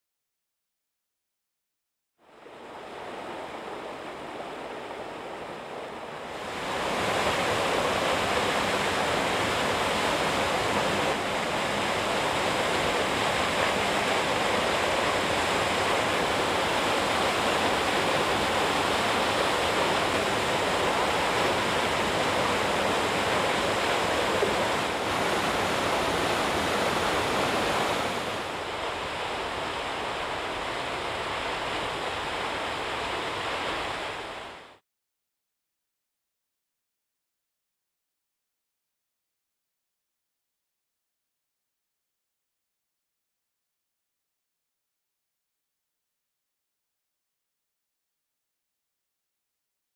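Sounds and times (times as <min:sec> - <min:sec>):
waterfall rushing: 0:02.4 - 0:34.8.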